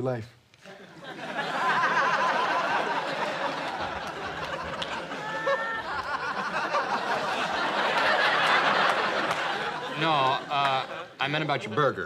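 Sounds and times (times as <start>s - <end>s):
audience laughing: 0.6s - 12.0s.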